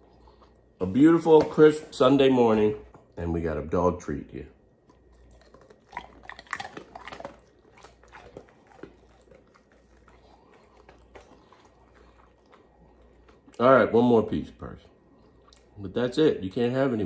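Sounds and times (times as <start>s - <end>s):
dog crunching biscuit: 4.8s - 13.8s.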